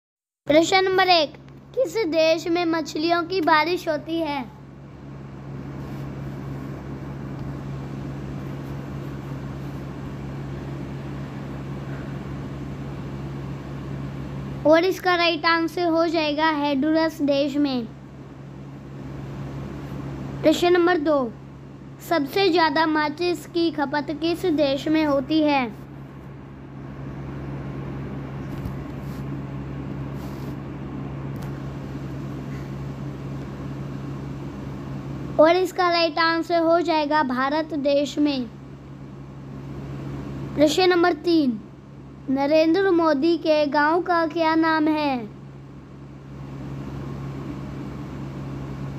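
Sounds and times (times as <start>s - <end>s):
low hum: 0.5s - 37.8s
faint rustles: 28.4s - 29.4s, 30.1s - 30.7s.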